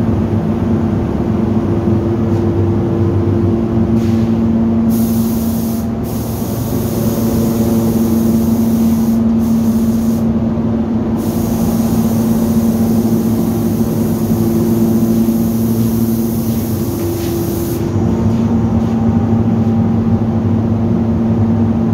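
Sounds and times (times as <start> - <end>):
spray-painting equipment humming: 3.6 - 20.1
spray-gun air hissing: 4.0 - 10.4, 11.2 - 18.0.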